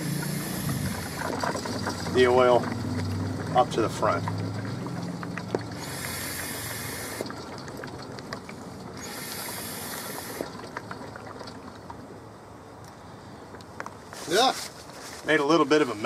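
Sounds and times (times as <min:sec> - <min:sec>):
oil slurping in suction hose: 0:00.0 - 0:12.1.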